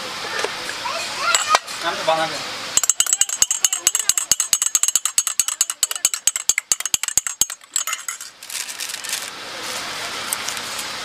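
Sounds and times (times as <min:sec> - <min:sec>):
teaspoon clinking glass cup: 0:02.8 - 0:08.3
steady hiss: 0:07.7 - 0:11.0.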